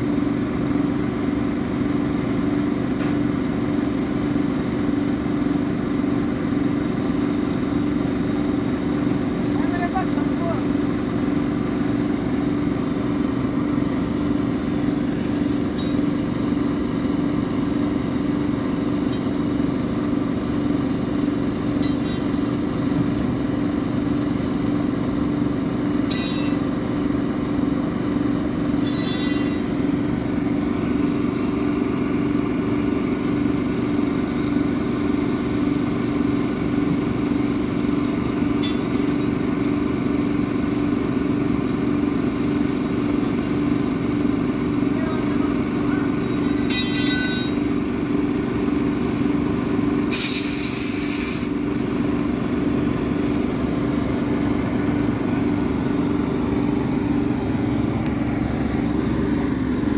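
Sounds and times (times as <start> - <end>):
engine idling: 0.0 - 59.9
short bursts of hiss: 50.1 - 51.5.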